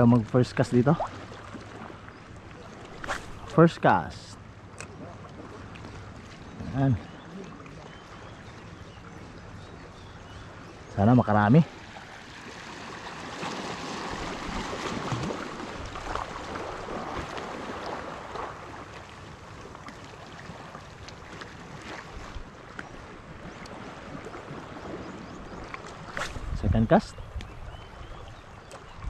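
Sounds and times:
small waves lapping on rocks: 11.6 - 26.6.

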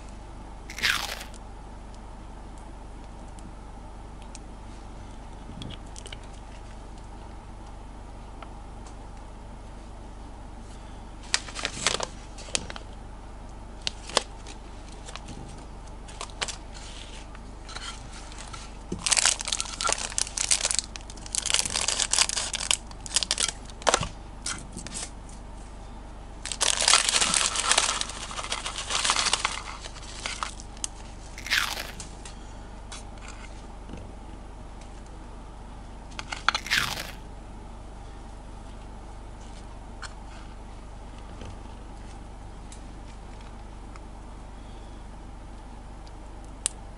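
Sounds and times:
plastic bag crinkling and tearing: 0.7 - 1.4, 18.2 - 24.0, 26.4 - 32.1, 36.5 - 37.2.

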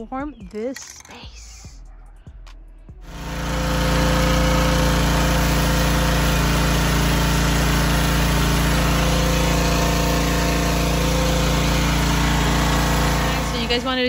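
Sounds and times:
pressure washer engine drone: 3.0 - 14.0.

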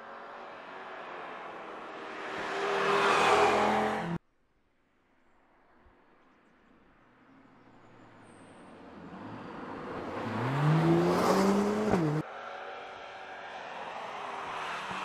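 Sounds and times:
car accelerating past: 0.1 - 4.2, 9.0 - 15.0.

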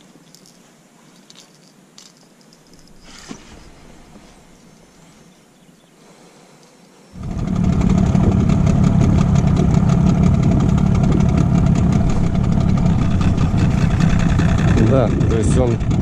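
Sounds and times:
outboard motor running: 7.2 - 16.0.

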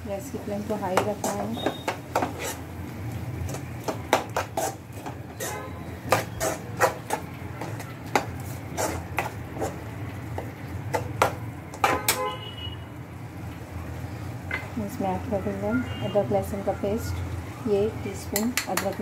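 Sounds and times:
spoon scraping cooking pan: 1.0 - 2.7, 3.4 - 12.2.

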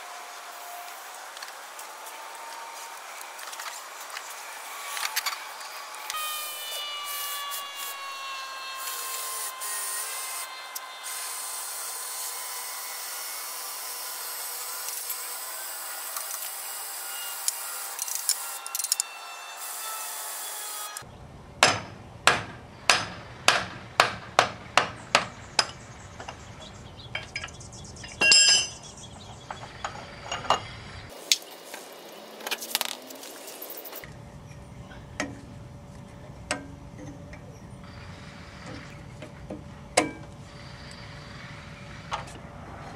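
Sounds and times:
hand tools clicking on metal: 17.4 - 19.1.

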